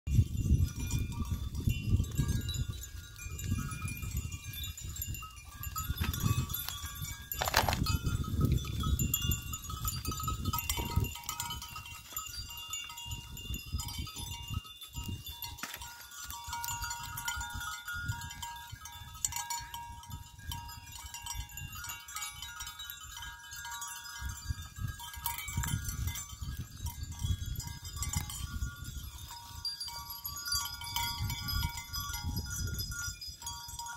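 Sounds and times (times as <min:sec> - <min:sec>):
wind rumble on microphone: 0:00.1 - 0:33.9.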